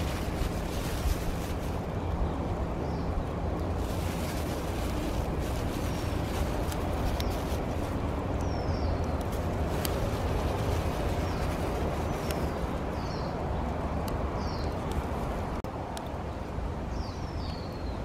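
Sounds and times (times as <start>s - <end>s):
wood fire crackling: 0.0s - 16.2s
bird chirping: 8.4s - 9.2s.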